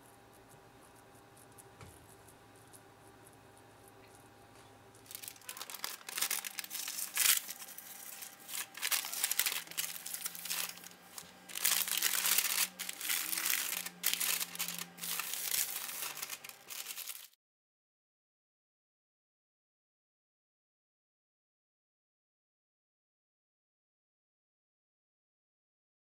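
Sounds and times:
parchment paper crinkling: 5.0s - 17.4s.

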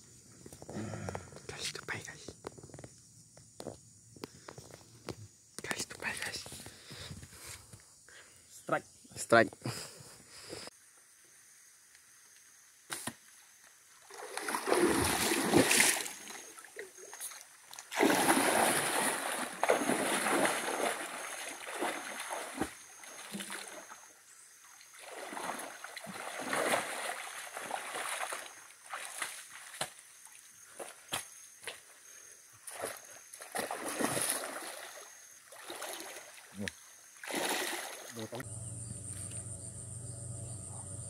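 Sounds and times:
person wading through water: 14.0s - 24.0s, 24.8s - 31.0s, 32.6s - 36.6s, 37.2s - 38.4s.

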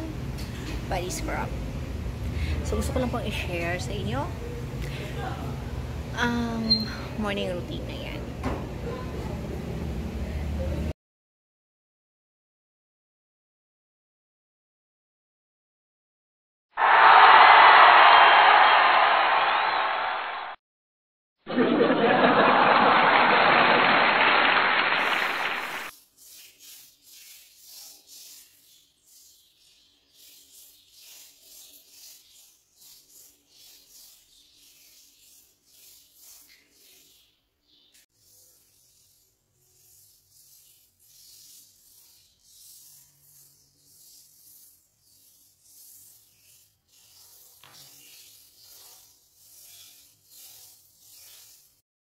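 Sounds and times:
crowd laughing and cheering: 16.8s - 20.5s, 21.5s - 25.9s
coffee grounds rubbed on skin: 25.8s - 37.4s, 38.1s - 51.8s.

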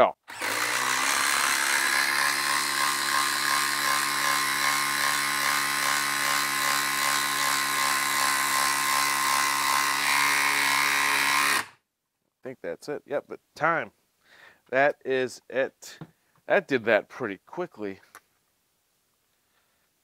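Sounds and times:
impact driver hammering screw: 0.3s - 11.8s.

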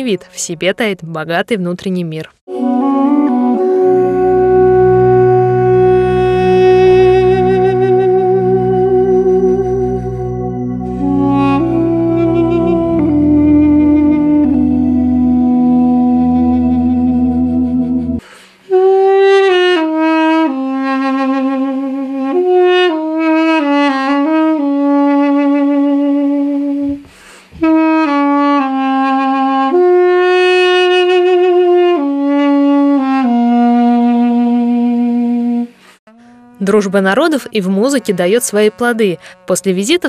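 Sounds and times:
steady low drone: 2.5s - 18.2s
sustained low chord: 2.5s - 18.2s
duduk slow solo melody: 2.5s - 36.8s.

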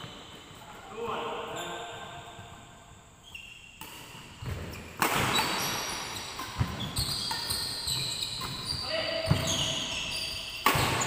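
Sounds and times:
shoes squeaking on wooden floor: 0.0s - 0.6s, 3.2s - 11.0s
racket hitting shuttlecock: 3.8s - 8.7s, 10.5s - 11.0s.

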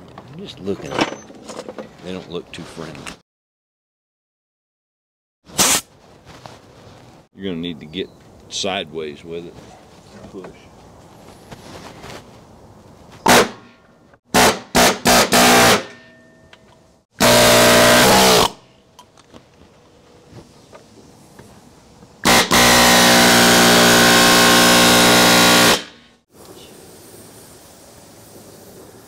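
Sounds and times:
air tool spinning: 17.2s - 18.6s, 22.2s - 26.0s.

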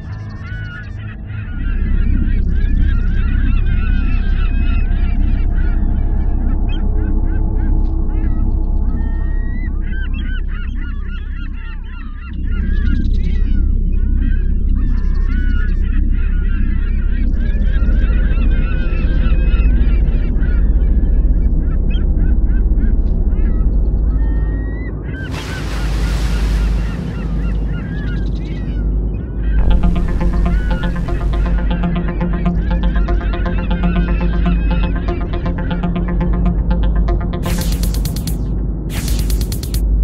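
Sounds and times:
rushing splash of water: 25.3s - 27.2s.

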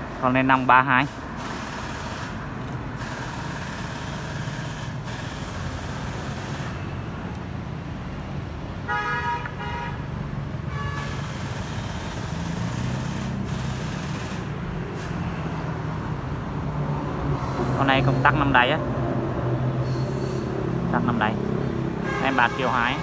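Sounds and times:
street traffic noise: 0.0s - 23.0s
vehicle horn: 8.9s - 10.0s, 10.7s - 11.3s, 22.0s - 23.0s.

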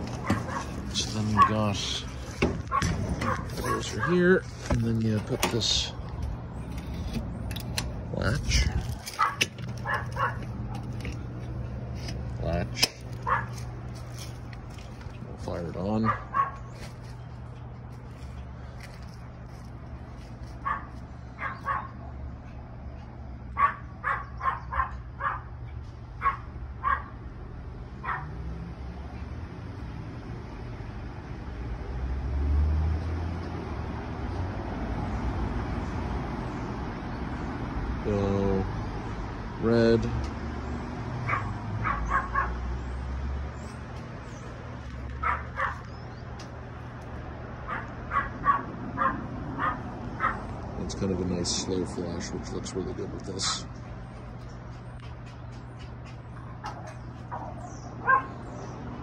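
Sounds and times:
dog barking: 0.2s - 1.6s, 2.6s - 4.4s, 9.1s - 11.0s, 13.2s - 13.7s, 16.0s - 16.8s, 20.6s - 22.2s, 23.5s - 25.6s, 26.2s - 27.2s, 28.0s - 28.4s, 41.2s - 42.6s, 45.2s - 45.9s, 47.6s - 50.5s, 56.6s - 58.5s.

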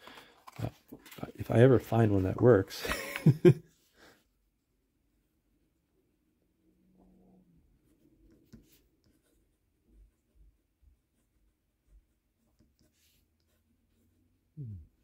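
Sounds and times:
pen nib scratching on paper: 7.9s - 14.2s.

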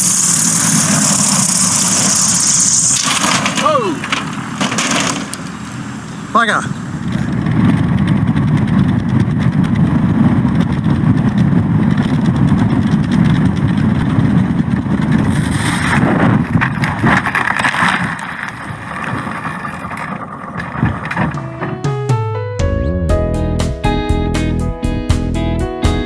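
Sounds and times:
landing gear rushing through crop: 0.0s - 5.4s, 7.2s - 21.9s
propeller engine droning: 0.0s - 26.0s.

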